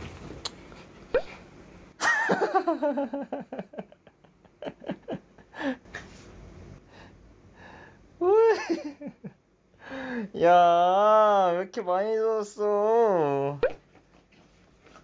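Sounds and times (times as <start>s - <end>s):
man laughing: 2.0s - 5.9s, 8.2s - 9.4s.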